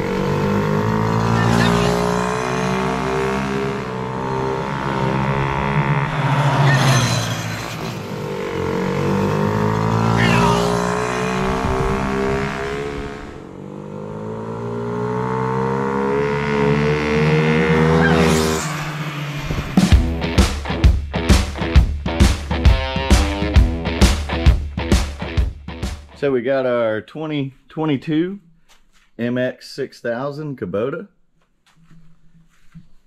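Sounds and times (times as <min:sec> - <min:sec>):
quad engine revving: 0:00.0 - 0:25.4.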